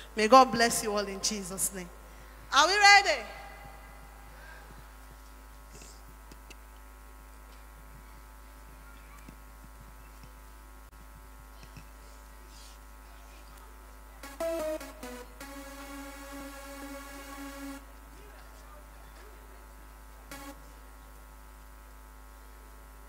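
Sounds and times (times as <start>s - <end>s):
low electrical hum: 0.0s - 23.0s
faint clicks and taps: 11.2s - 12.0s.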